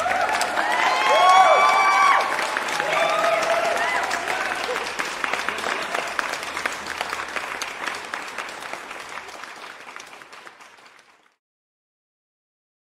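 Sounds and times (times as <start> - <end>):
applause: 0.0 - 11.4.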